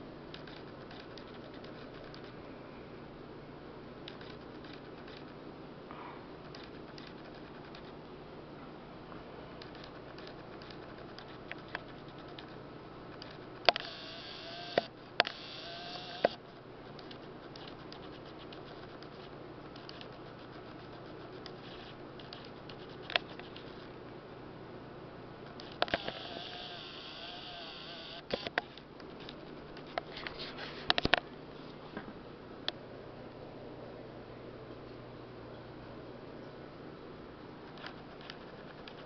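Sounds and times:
aquarium filter hum: 7.2s - 27.9s.

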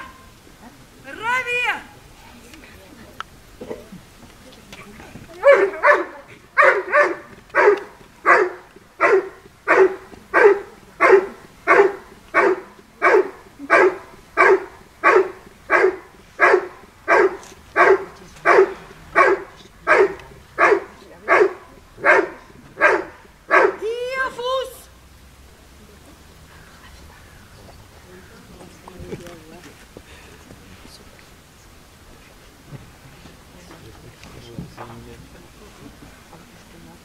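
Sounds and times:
dog barking: 5.4s - 23.8s.

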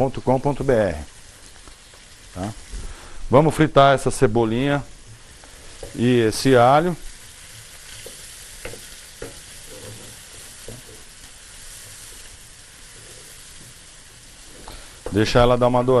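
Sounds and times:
onion sizzling in oil: 0.0s - 16.0s
spoon knocking against pan: 8.0s - 10.9s.

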